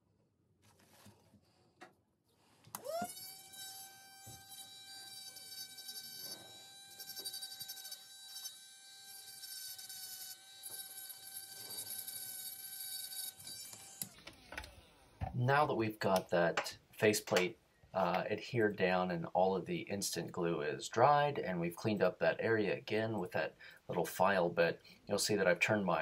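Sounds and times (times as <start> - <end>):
rotary tool whining and grinding: 2.7 - 15.0.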